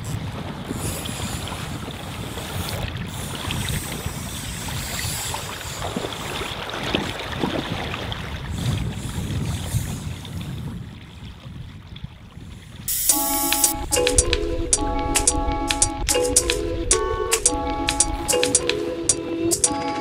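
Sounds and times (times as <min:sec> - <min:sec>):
river water lapping: 0:00.0 - 0:20.0
wind buffeting microphone: 0:00.0 - 0:20.0.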